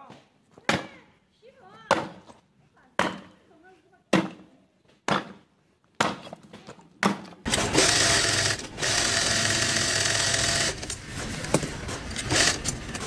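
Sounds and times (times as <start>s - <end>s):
axe splitting firewood: 6.0s - 7.7s
sewing machine running: 7.5s - 13.0s.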